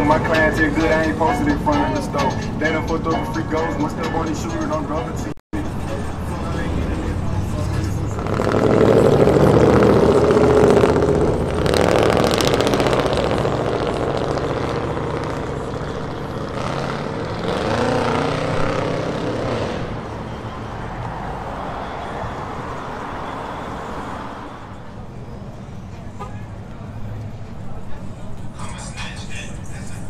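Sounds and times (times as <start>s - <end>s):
engine accelerating: 0.0s - 23.0s
vehicles driving past: 0.0s - 30.0s.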